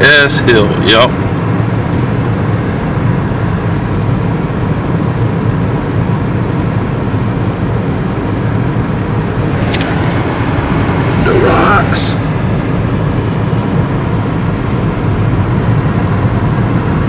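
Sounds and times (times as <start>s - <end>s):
car cabin road noise: 0.0s - 17.0s.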